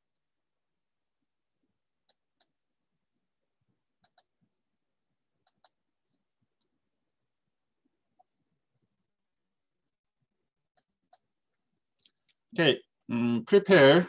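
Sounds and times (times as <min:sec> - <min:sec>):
computer mouse clicking: 0:02.0 - 0:02.6, 0:04.0 - 0:04.4, 0:05.4 - 0:05.8, 0:10.8 - 0:11.3.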